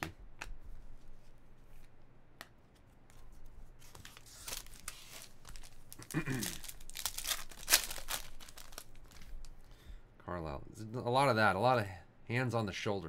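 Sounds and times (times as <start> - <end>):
foil wrapper crinkling: 3.9 - 9.6.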